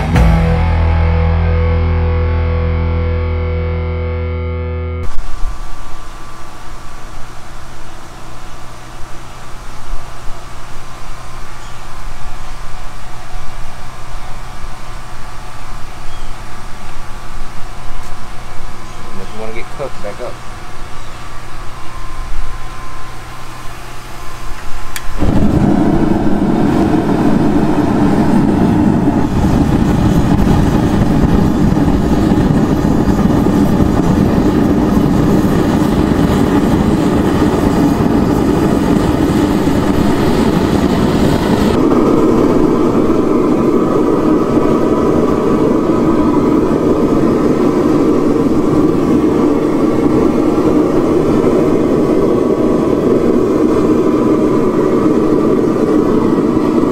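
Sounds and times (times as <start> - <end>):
forge burner gas rushing: 24.0 - 56.9.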